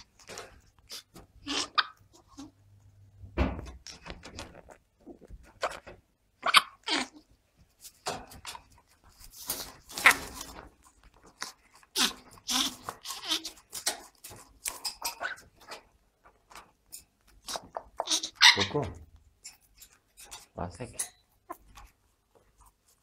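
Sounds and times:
animal squeaking and calling: 0:00.9 - 0:02.5, 0:06.4 - 0:07.2, 0:11.9 - 0:13.7, 0:17.5 - 0:19.0.

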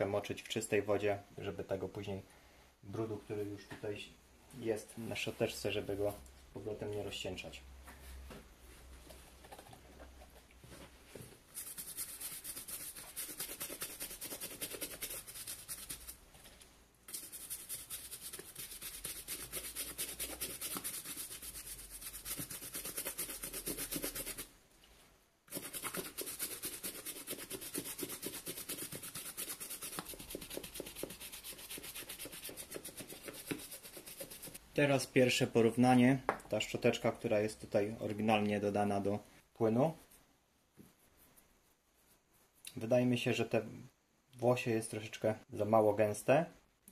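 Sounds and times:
brush scrubbing suede: 0:11.5 - 0:16.2, 0:17.1 - 0:24.5, 0:25.5 - 0:34.6.

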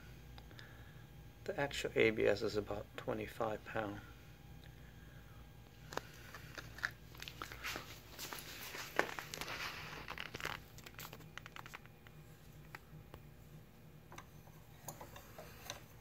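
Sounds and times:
rustling: 0:06.0 - 0:12.0.

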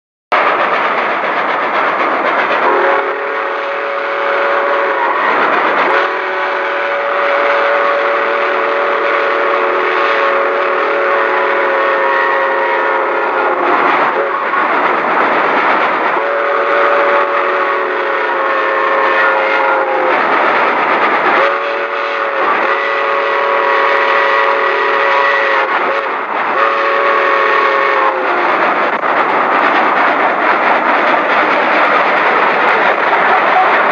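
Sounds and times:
train running noise: 0:00.3 - 0:33.9
steam locomotive whistle blasts: 0:02.6 - 0:14.6, 0:16.1 - 0:20.2, 0:21.3 - 0:28.5.

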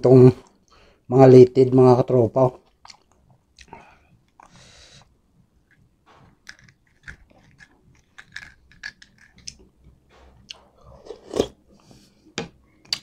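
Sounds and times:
wet chewing: 0:02.6 - 0:04.6, 0:06.3 - 0:11.6
slurping soup from a spoon: 0:10.7 - 0:12.0.

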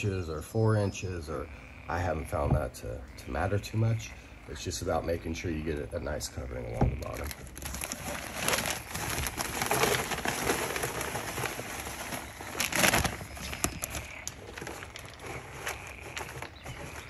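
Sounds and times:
plastic bag crinkling: 0:07.1 - 0:17.0.

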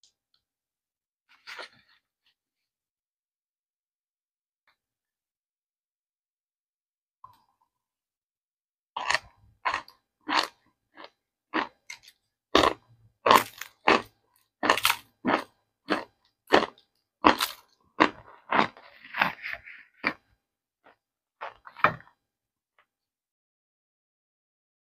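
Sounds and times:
cornstarch chunks crunching: 0:09.0 - 0:22.2.

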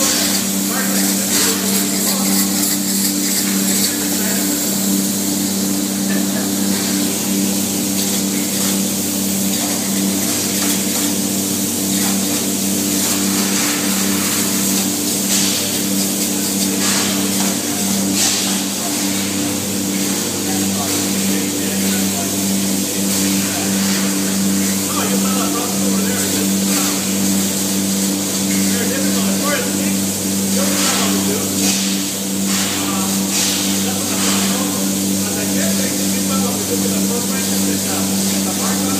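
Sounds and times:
spray foam gun hissing: 0:00.0 - 0:06.4
low machine hum: 0:00.0 - 0:38.9.

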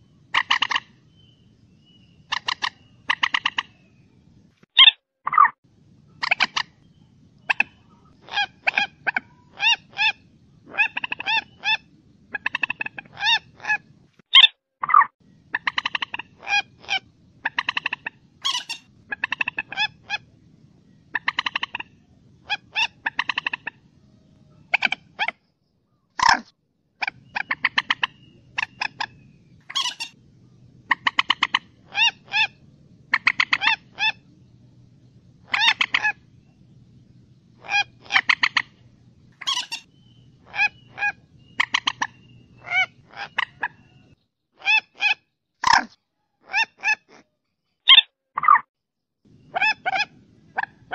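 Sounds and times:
faint low hum: 0:00.0 - 0:04.6, 0:05.6 - 0:14.2, 0:15.2 - 0:44.2, 0:49.3 - 0:50.9
moorhen calling: 0:00.1 - 0:04.1, 0:06.1 - 0:20.3, 0:21.0 - 0:25.3, 0:27.0 - 0:30.2, 0:30.8 - 0:34.4, 0:35.4 - 0:36.7, 0:37.6 - 0:38.8, 0:39.4 - 0:45.8, 0:49.4 - 0:50.9.

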